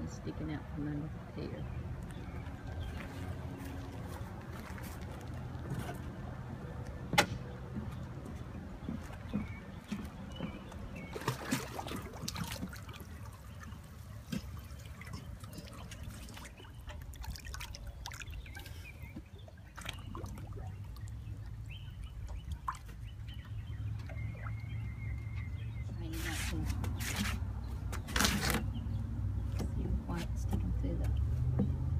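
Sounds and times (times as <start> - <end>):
water sloshing and dripping: 1.2 - 31.9.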